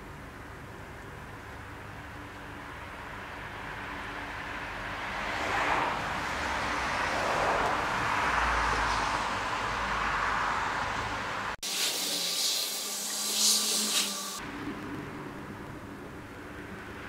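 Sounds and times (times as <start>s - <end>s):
car passing: 3.2s - 11.6s.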